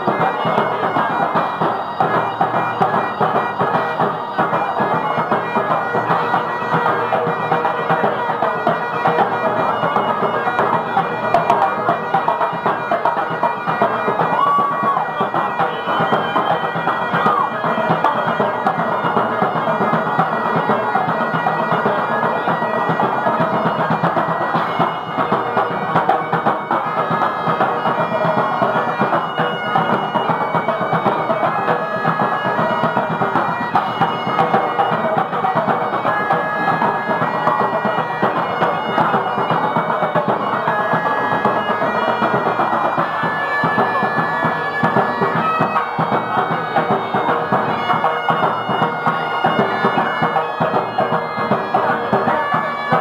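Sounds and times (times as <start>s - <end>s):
bagpipes playing a tune: 0.0s - 53.0s
drums beating: 0.0s - 53.0s.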